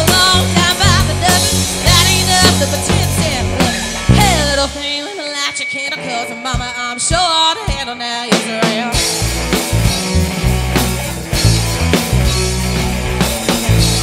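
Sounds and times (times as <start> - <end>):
bass guitar: 0.0 - 5.0, 8.4 - 14.0
person singing: 0.0 - 9.1
drums: 0.0 - 14.0
electric guitar: 0.0 - 14.0.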